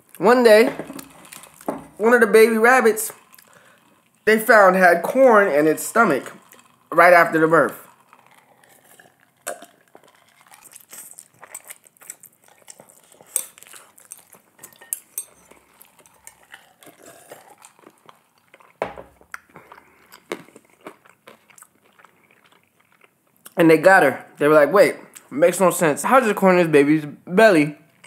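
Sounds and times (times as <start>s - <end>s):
slurping and chewing noodles: 0.8s - 2.0s, 2.8s - 23.6s
utensils clinking on dishes: 13.0s - 17.4s.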